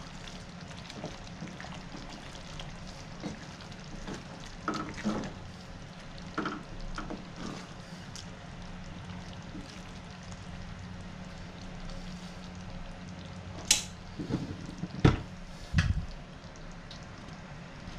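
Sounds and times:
wooden spatula stirring stew: 0.0s - 8.3s, 9.0s - 10.4s
stew simmering: 0.0s - 17.9s
wood knocking on a pan: 6.4s - 7.2s, 14.2s - 15.3s.

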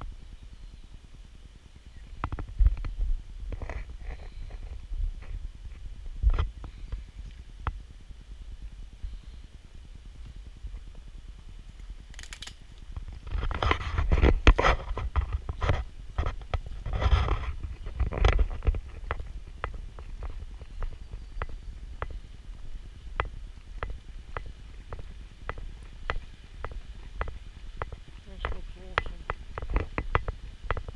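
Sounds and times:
low rumble: 0.0s - 30.9s
footsteps on paved path: 10.0s - 30.9s
rustling and knocks: 13.0s - 22.2s.

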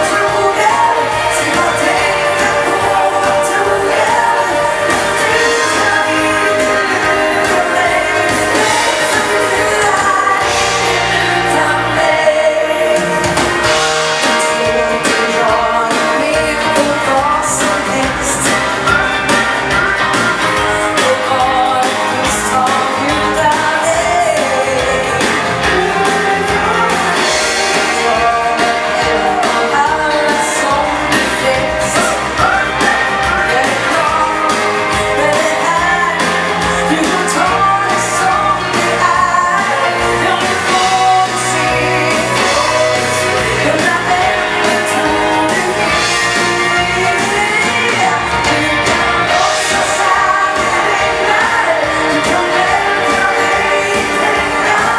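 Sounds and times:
dance band with singer: 0.0s - 54.9s.

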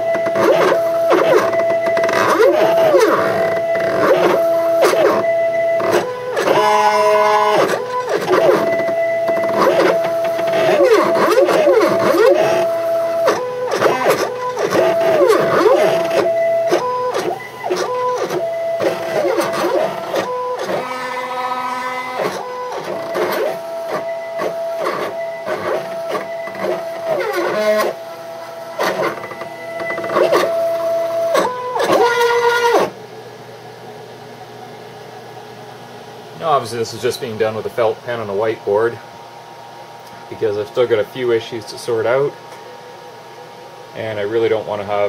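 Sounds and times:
stepper motors whining: 0.0s - 33.0s.

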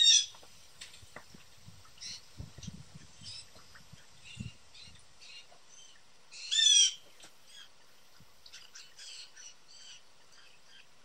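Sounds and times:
harsh blue jay call: 6.4s - 7.7s.

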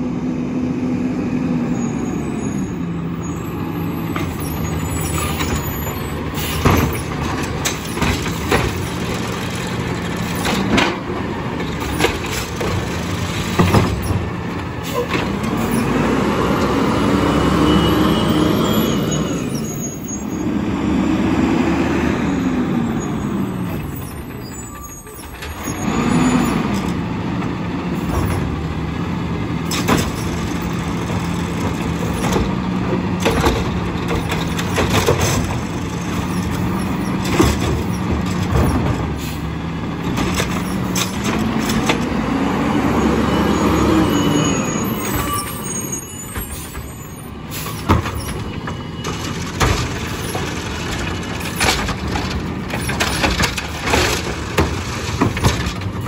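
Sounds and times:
garbage truck engine revving: 0.0s - 56.0s.

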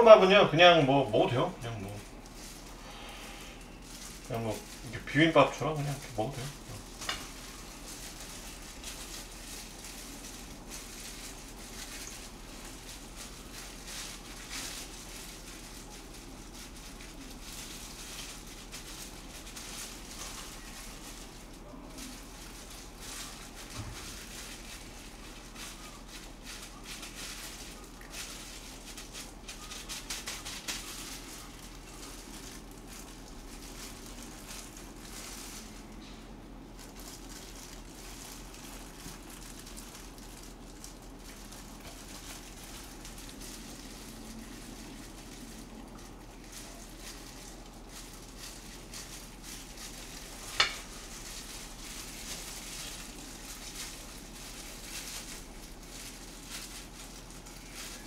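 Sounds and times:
kitchen handling noises: 50.3s - 51.1s.

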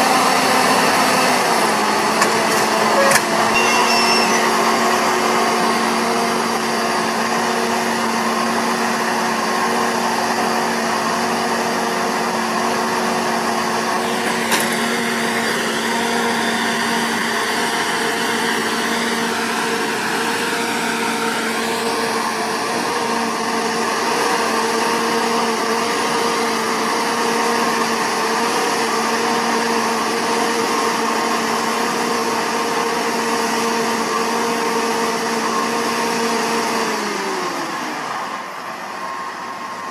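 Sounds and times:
harvester mechanical whir: 0.8s - 5.3s.

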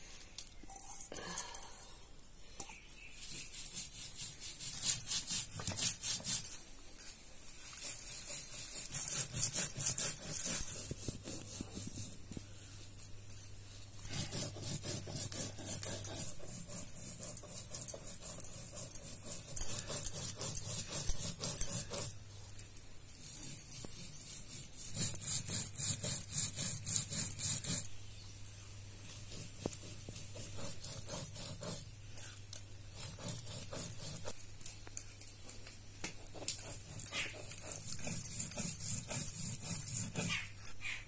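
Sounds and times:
knife scraping and cutting gourd: 2.6s - 6.6s, 7.6s - 12.2s, 14.0s - 22.2s, 36.3s - 41.0s.

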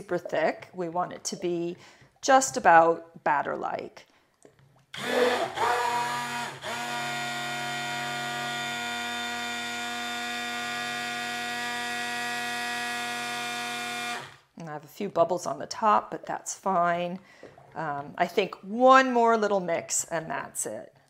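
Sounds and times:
stick blender motor running: 5.0s - 14.5s.

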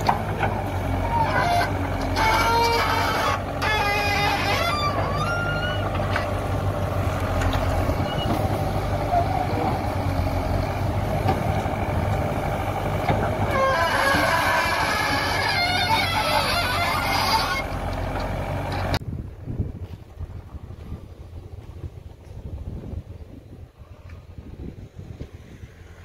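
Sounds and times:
diesel engine running under load: 0.0s - 26.0s
pitched honking calls: 1.0s - 5.9s, 13.4s - 17.8s.

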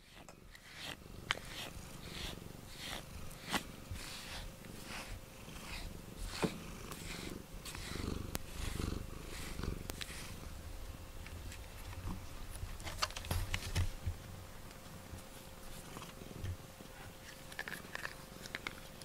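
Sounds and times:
cat purring: 0.0s - 11.0s.

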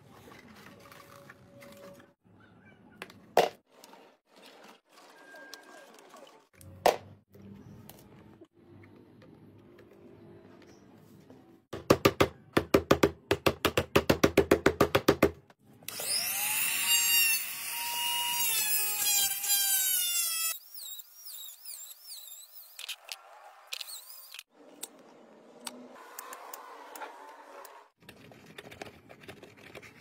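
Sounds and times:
angle grinder whining: 15.9s - 24.5s.

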